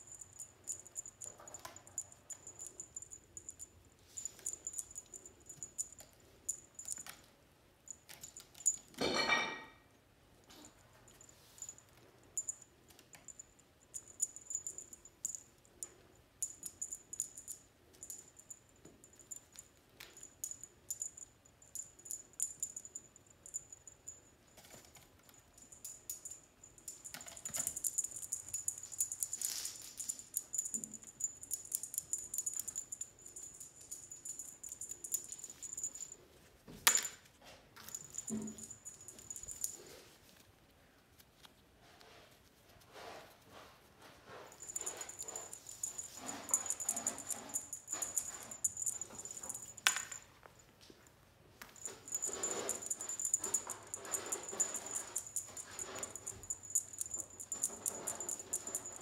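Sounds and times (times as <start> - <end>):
small bell jingling: 0.0 - 7.3, 7.9 - 9.5, 10.5 - 36.2, 37.8 - 40.0, 44.3 - 50.3, 51.6 - 59.0
paws clicking and scratching: 44.4 - 49.9, 51.6 - 59.0.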